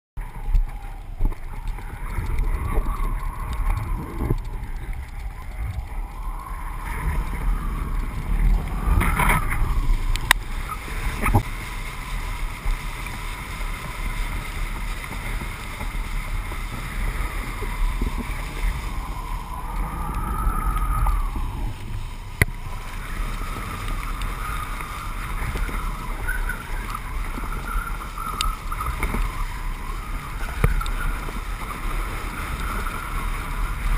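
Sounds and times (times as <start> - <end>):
water hiss and splashing: 0.2 - 33.9
wind buffeting camera: 0.2 - 33.9
faint wavering whistle: 17.1 - 33.9.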